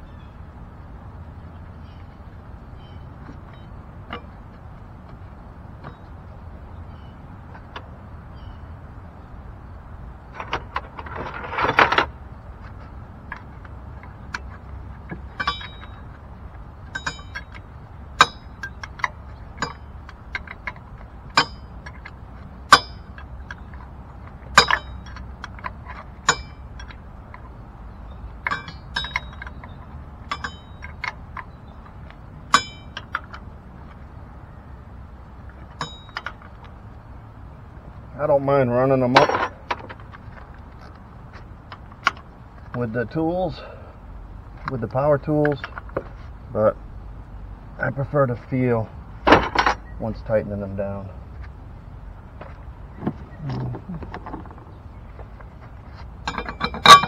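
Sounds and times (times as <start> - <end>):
scraping rustle: 10.3 - 16.2, 52.4 - 57.0
hand tools clinking on metal: 15.1 - 16.1, 16.9 - 23.9, 24.5 - 27.0, 28.4 - 31.5, 32.5 - 33.4, 35.7 - 36.5, 56.2 - 57.0.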